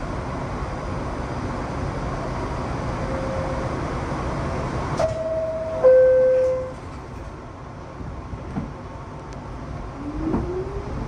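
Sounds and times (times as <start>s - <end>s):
train motors and ventilation hum: 0.0s - 11.0s
two-tone door chime: 5.1s - 6.7s.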